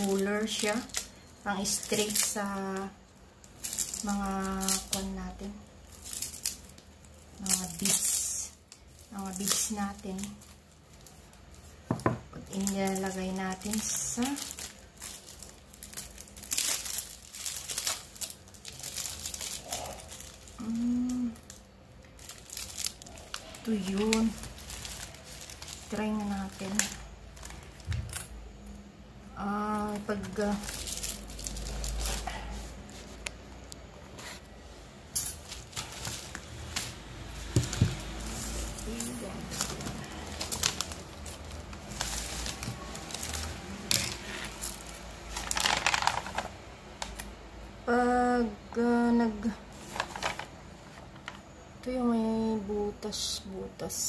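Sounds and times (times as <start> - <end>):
plastic bag crinkling: 0.0 - 28.8, 29.4 - 33.5, 34.2 - 47.4, 49.3 - 51.6
person humming: 20.6 - 21.4.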